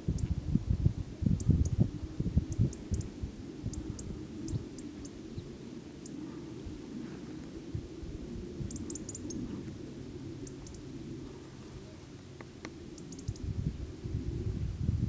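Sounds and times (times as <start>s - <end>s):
wind rumbling on microphone: 0.0s - 15.0s
faint high bird chirps: 13.0s - 13.5s.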